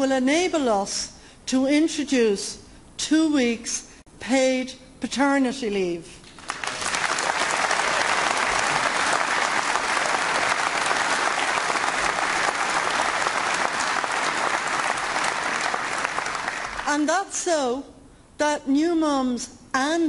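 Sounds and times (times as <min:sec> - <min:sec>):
audience applauding: 0:06.3 - 0:16.9.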